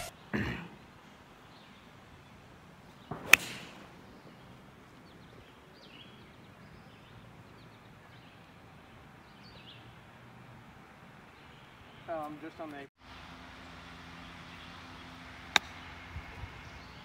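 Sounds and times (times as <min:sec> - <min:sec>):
club striking golf ball: 0:03.2 - 0:03.8
golf club swoosh: 0:03.2 - 0:03.8.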